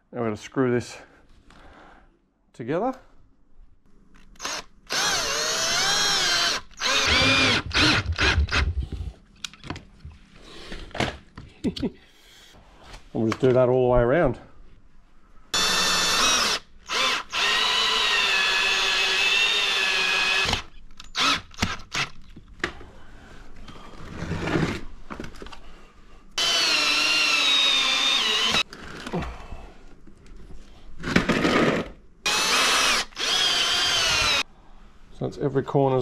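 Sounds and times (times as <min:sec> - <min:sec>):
power drill driving screws: 0:04.4 - 0:08.7, 0:15.6 - 0:22.2, 0:26.4 - 0:28.6, 0:32.3 - 0:34.4.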